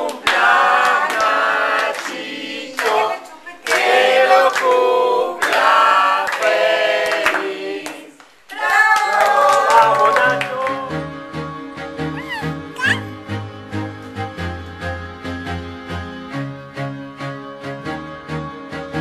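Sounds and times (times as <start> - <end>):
hand claps: 0.0 - 3.0, 3.6 - 10.8
family singing together: 0.0 - 8.6, 9.6 - 12.4.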